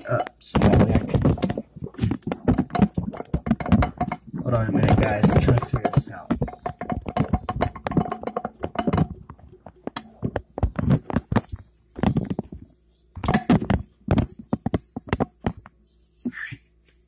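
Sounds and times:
camera handling knocks and rubbing: 0.6s - 12.6s.

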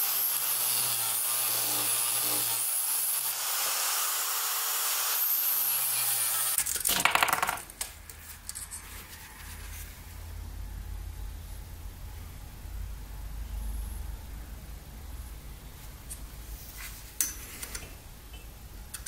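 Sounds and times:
angle grinder grinding steel: 0.0s - 6.6s
low hum: 8.7s - 16.7s.

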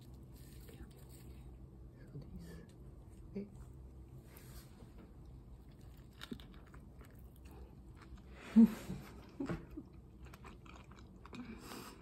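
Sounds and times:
person chewing food: 5.0s - 12.0s.

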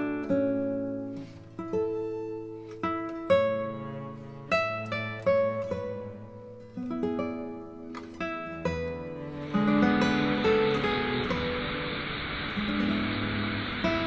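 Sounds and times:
acoustic guitar plucked notes: 0.0s - 14.0s.

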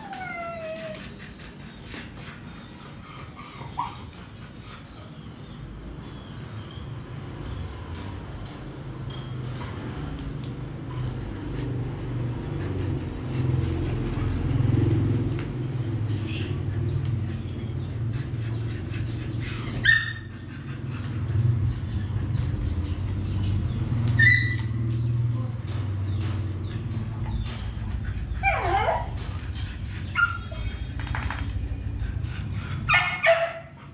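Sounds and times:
dog yelp: 0.0s - 1.0s, 3.0s - 4.1s, 19.1s - 21.2s, 24.2s - 24.9s, 27.2s - 29.2s, 29.8s - 31.4s, 32.2s - 33.8s.

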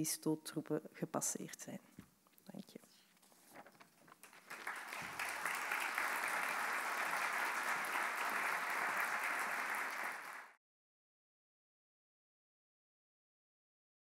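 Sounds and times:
audience applauding: 4.2s - 10.6s.

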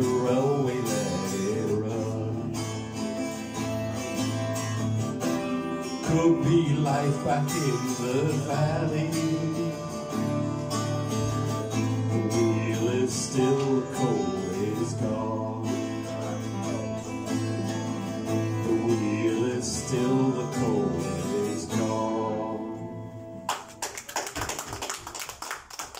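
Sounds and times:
acoustic guitar strumming: 0.0s - 23.8s
people clapping: 23.5s - 25.9s.

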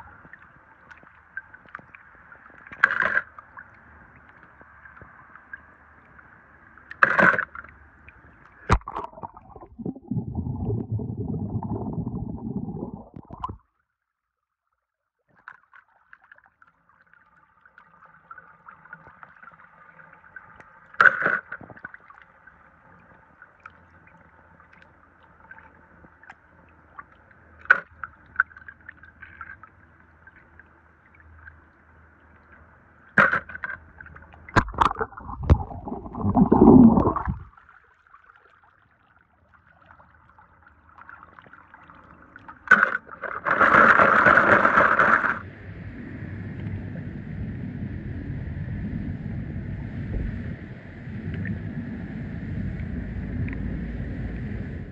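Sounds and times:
water gurgling and sloshing: 0.0s - 13.8s, 15.3s - 54.9s
rush of water: 8.6s - 13.6s, 34.5s - 37.6s, 42.6s - 45.5s.

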